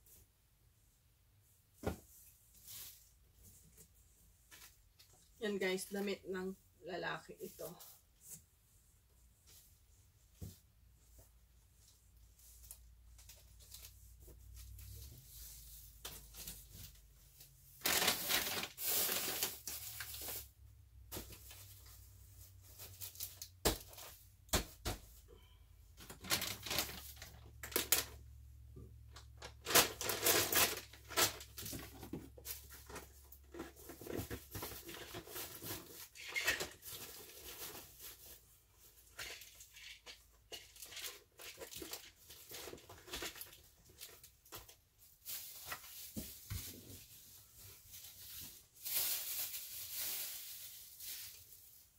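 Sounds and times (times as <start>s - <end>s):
plastic bags and clothing rustling: 1.6s - 8.7s, 9.5s - 28.4s, 29.0s - 51.9s.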